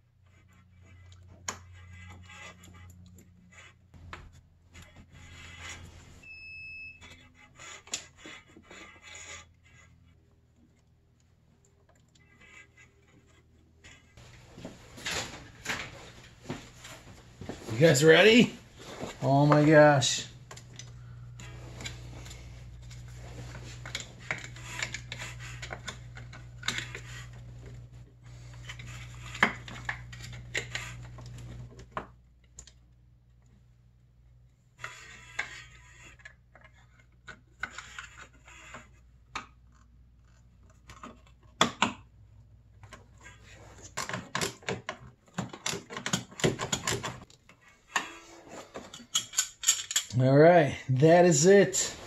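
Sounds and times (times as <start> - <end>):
steady low hum: 13.9 - 32.4.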